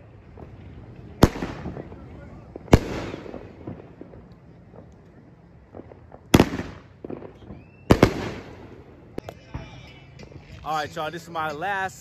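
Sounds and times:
firework shells bursting: 0:01.2 - 0:09.7.

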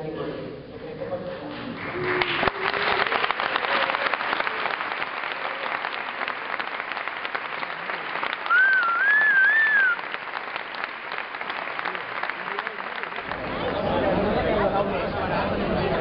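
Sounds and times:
people applauding: 0:01.5 - 0:14.2
person whistling wavy note: 0:08.5 - 0:10.0.

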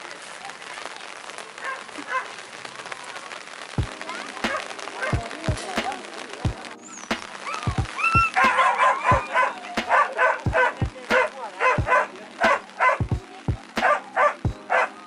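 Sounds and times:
dogs barking and yelping: 0:01.6 - 0:02.4, 0:04.5 - 0:05.6, 0:06.9 - 0:13.1, 0:13.8 - 0:15.0
dogs whining: 0:06.8 - 0:13.0.

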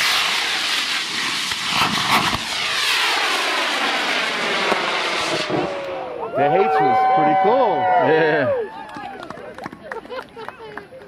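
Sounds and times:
sharp cracks: 0:00.0 - 0:06.0
rocket motors roaring: 0:00.0 - 0:07.0.

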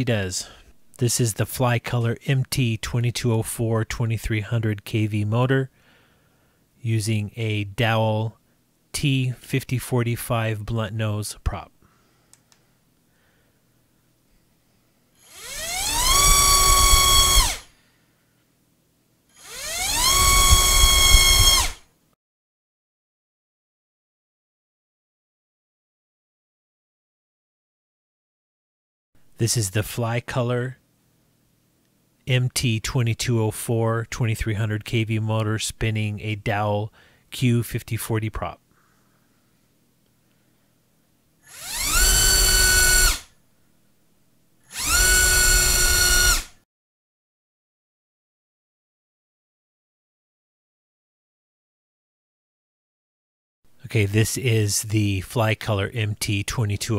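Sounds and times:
brushless motor whine: 0:15.2 - 0:17.7, 0:19.4 - 0:21.8, 0:41.5 - 0:43.2, 0:44.7 - 0:46.5.

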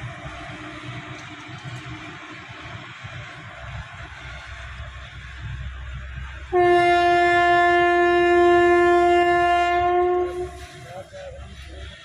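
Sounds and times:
freight train rumbling past: 0:00.0 - 0:12.0
locomotive horn blast: 0:06.5 - 0:10.8.

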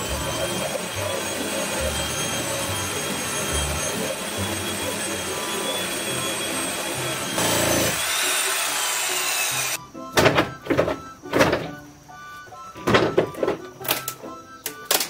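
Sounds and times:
power tool cutting wood: 0:00.0 - 0:09.8.

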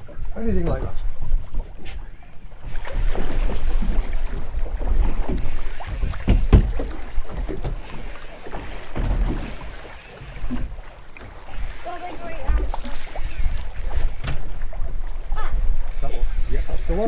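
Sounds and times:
water slapping hull: 0:00.0 - 0:17.0
knocks and thuds: 0:06.1 - 0:06.9, 0:08.9 - 0:09.4.

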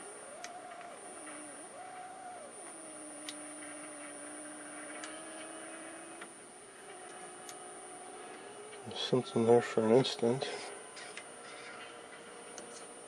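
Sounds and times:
sharp ticks: 0:00.0 - 0:06.4
high-pitched television whine: 0:00.0 - 0:13.0
low wavering sliding tone: 0:00.0 - 0:13.0.

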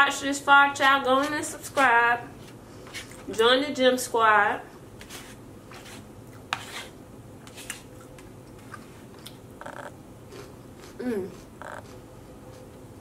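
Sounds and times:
chewing: 0:08.0 - 0:12.8.

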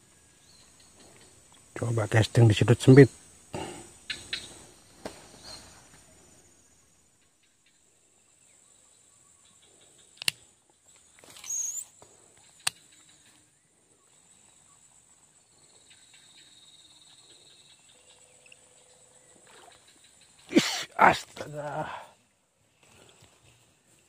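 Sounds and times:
sharp clicks: 0:10.1 - 0:10.5, 0:12.5 - 0:13.1.

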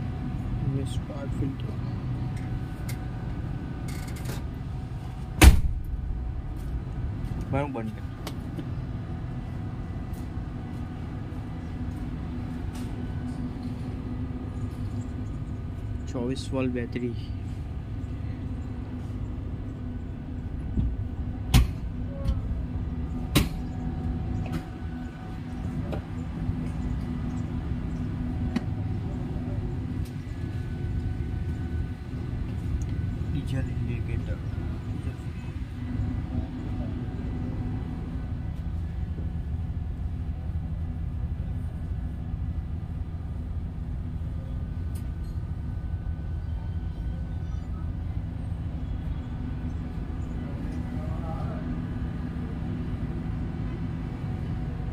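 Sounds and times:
diesel generator running: 0:00.0 - 0:54.9
low machinery hum: 0:00.0 - 0:54.9.

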